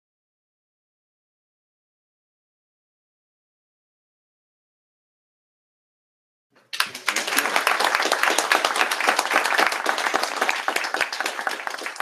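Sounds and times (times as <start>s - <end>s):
audience applauding: 6.6s - 12.0s.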